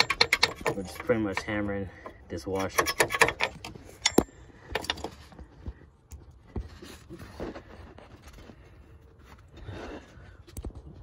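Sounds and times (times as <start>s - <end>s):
tool scraping: 0.0s - 5.4s.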